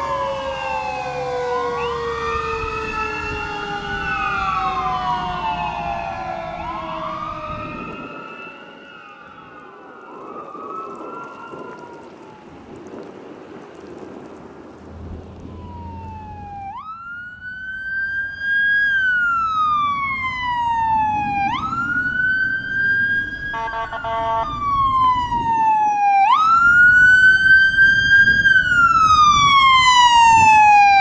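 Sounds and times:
fire engine sirens wailing: 0.0 - 31.0
truck engine rumbling: 12.6 - 25.7.

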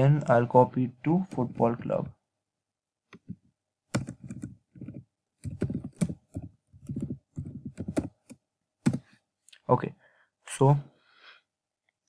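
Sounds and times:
typing on computer keyboard: 3.9 - 9.0.

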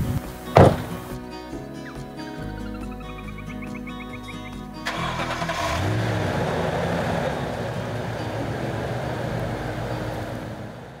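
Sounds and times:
truck engine running: 2.4 - 11.0.

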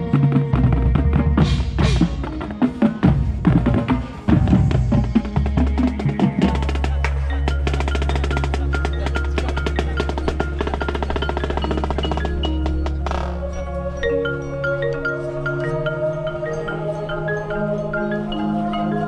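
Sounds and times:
drums and woodblock: 0.0 - 13.8
marching band music: 0.0 - 19.0
fast mallet percussion ticks: 4.7 - 19.0.

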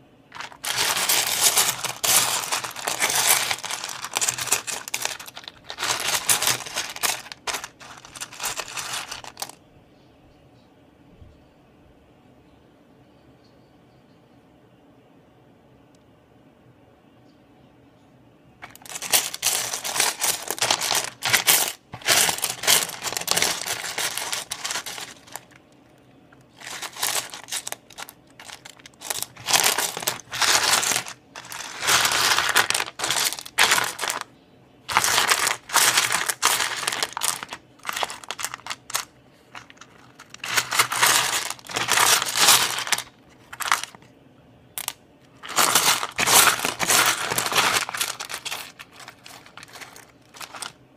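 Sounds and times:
stones rattling and clinking: 0.3 - 9.6, 18.6 - 25.6, 26.6 - 34.3, 34.9 - 44.1, 44.8 - 50.8.

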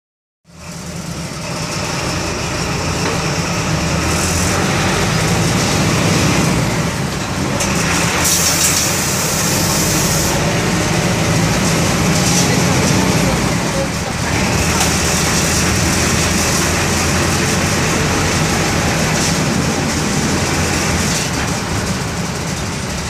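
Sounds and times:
diesel engine running: 0.5 - 23.0
high hiss bursts: 8.2 - 10.4.

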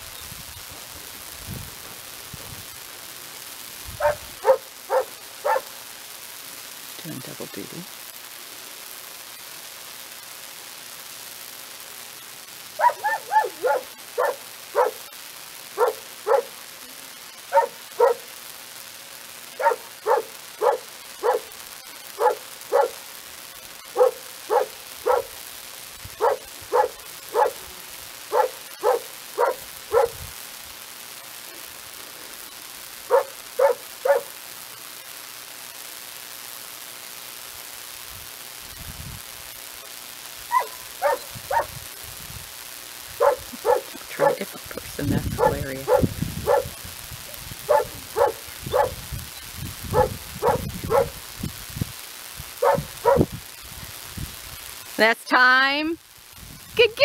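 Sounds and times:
small dog barking: 4.0 - 5.8, 12.8 - 15.1, 15.8 - 16.6, 17.5 - 18.3, 19.6 - 23.0, 23.9 - 25.4, 26.2 - 27.7, 28.3 - 30.2, 33.1 - 34.4, 40.5 - 41.8, 43.2 - 44.4, 45.4 - 46.8, 47.7 - 49.0, 49.9 - 51.2, 52.6 - 53.3.

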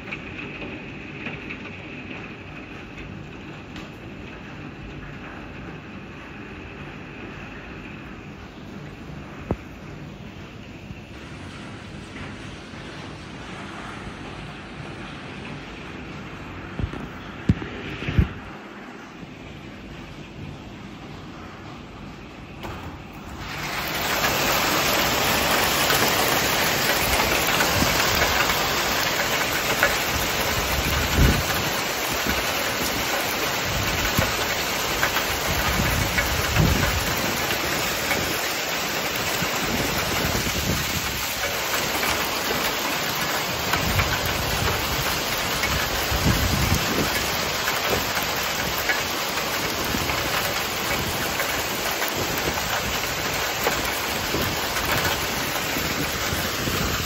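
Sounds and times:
heavy rain and hail: 0.0 - 57.0
wind buffeting microphone: 10.6 - 19.6, 22.9 - 57.0.

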